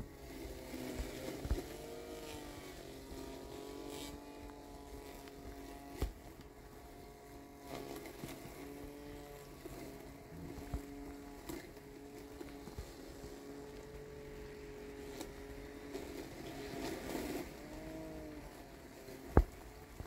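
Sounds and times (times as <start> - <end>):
robotic mower motors whining: 0.0 - 20.0.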